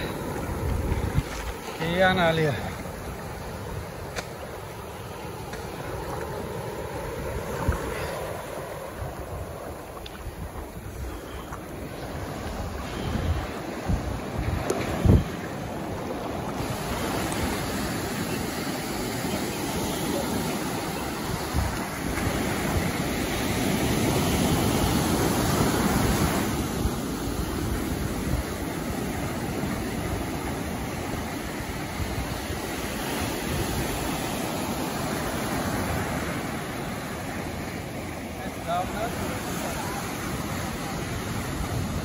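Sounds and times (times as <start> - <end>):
sea surf rushing: 0.0 - 42.0
wind on microphone: 0.0 - 42.0.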